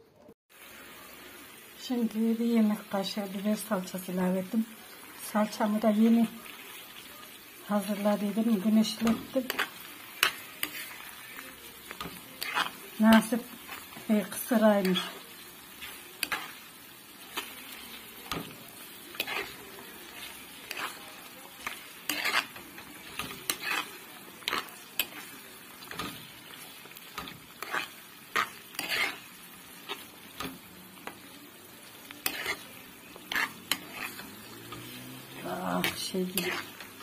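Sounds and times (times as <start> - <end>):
onions sizzling in oil: 0.5 - 37.0
wooden spoon scraping a pan: 7.6 - 37.0.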